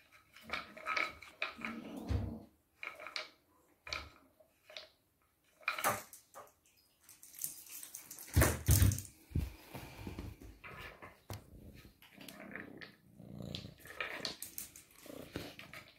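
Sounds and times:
balls rattling in wooden track: 0.1 - 1.8, 2.8 - 6.5, 12.1 - 15.9.

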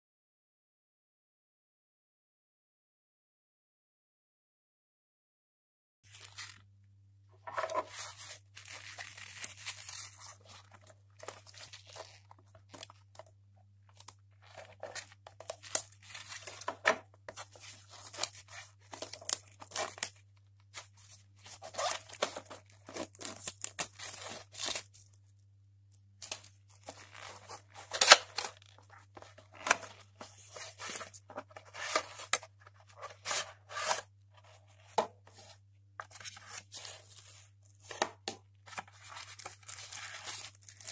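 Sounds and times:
packaging rustling and tearing: 6.1 - 6.6, 7.5 - 13.3, 13.9 - 20.2, 20.8 - 25.1, 26.2 - 38.0, 38.7 - 40.9.

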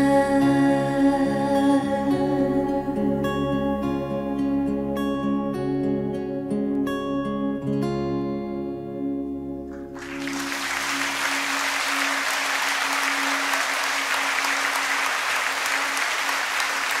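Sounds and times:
audience applause: 9.8 - 17.0.

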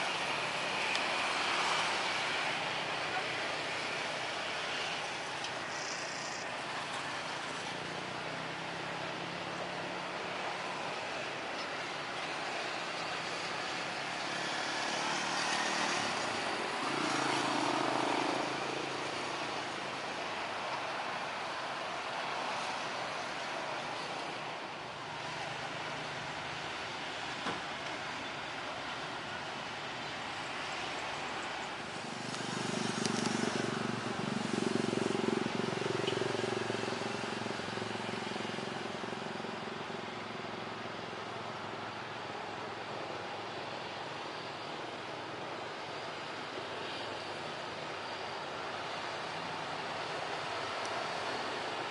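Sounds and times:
jet engines running: 0.0 - 51.9
truck engine hum: 0.0 - 51.9
heavy truck passing: 12.3 - 20.6.

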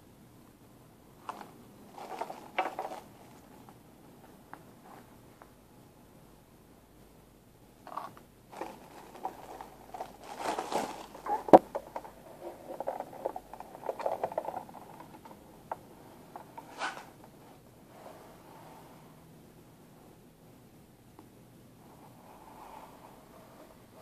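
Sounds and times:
plastic wrap rustling: 1.2 - 3.6, 7.9 - 15.3.

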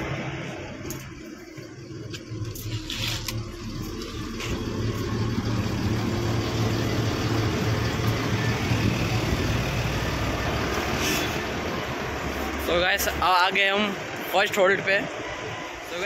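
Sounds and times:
diesel bus engine idling: 0.0 - 16.0
brief hiss: 11.0 - 11.4.

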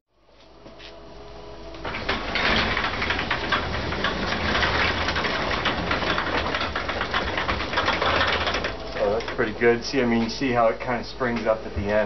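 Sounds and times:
garage door rattling up: 1.7 - 10.6.

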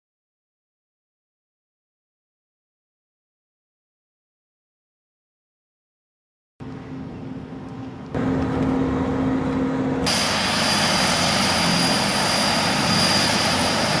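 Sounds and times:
propeller aircraft engines: 6.6 - 14.0
steady low hum: 6.6 - 14.0.

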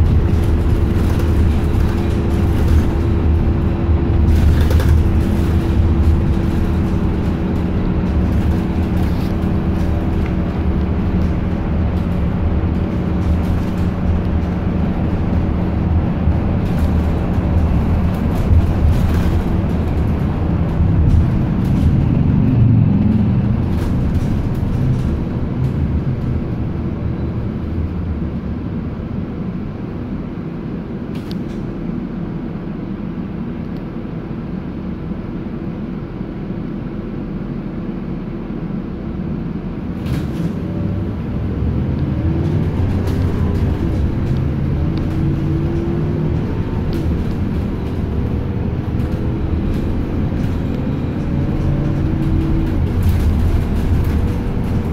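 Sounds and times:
sharp rattles and clicks: 0.0 - 26.4, 42.3 - 54.9
bus engine and road rumble: 0.0 - 54.9.

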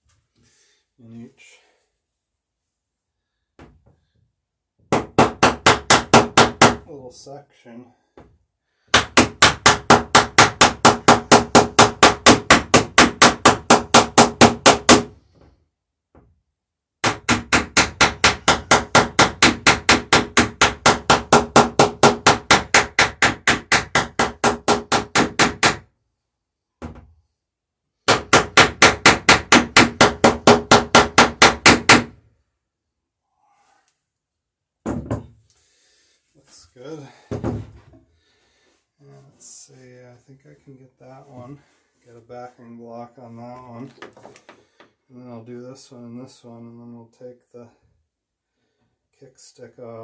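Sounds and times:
hammer peening rivets on wood: 17.0 - 25.8.

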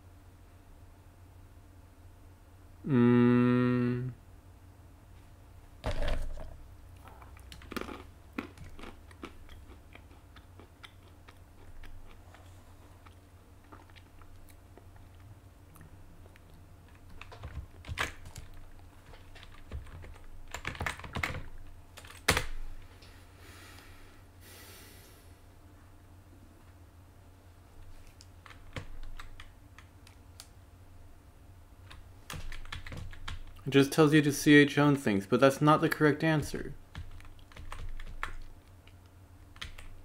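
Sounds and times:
computer keyboard typing: 16.9 - 22.6, 28.4 - 30.2, 31.9 - 33.6, 36.9 - 40.0.

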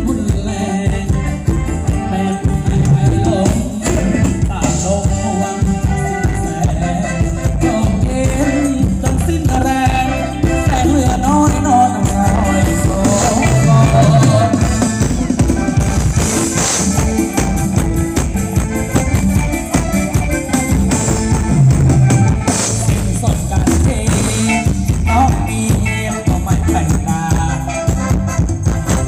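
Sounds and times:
person singing: 0.0 - 15.8, 22.3 - 28.4
driving drum beat: 0.0 - 29.0
live band dance music: 0.0 - 29.0.

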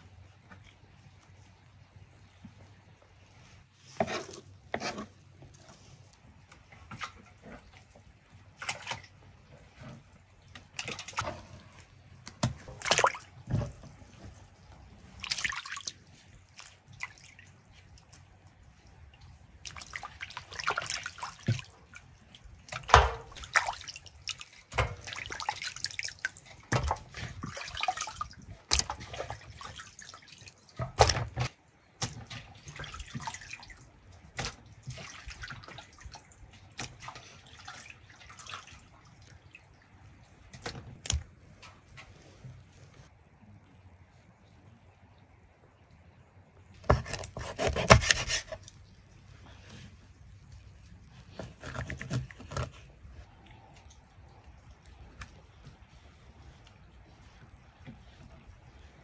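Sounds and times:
water splashing in basin: 8.5 - 9.8, 10.4 - 41.9
water dripping: 10.2 - 31.3.

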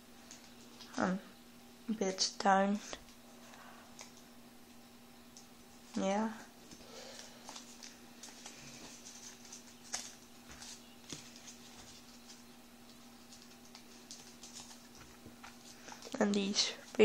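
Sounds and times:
faint steady hum: 0.0 - 17.0
paper crinkling: 6.7 - 17.0.

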